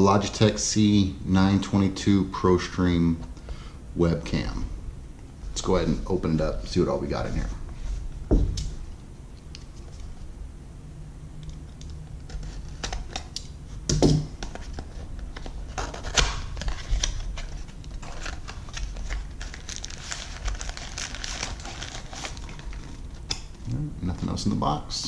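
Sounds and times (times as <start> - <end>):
knock on box: 8.3 - 8.6
plastic packaging crinkling: 14.4 - 23.6.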